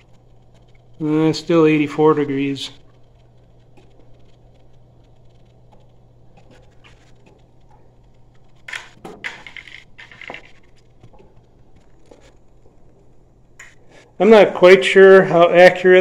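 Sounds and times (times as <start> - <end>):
circulator pump humming: 0.0 - 15.8.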